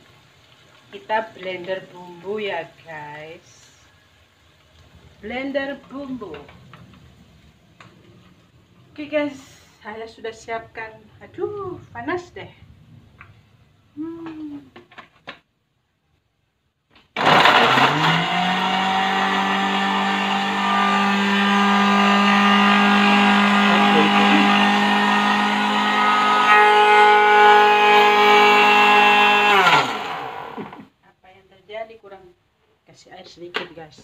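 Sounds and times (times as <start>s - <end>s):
blender motor grinding: 17.2s - 30.9s.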